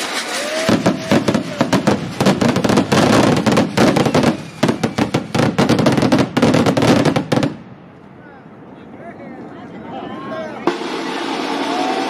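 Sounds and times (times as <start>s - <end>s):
firecrackers popping: 0.0s - 7.6s, 10.6s - 12.0s.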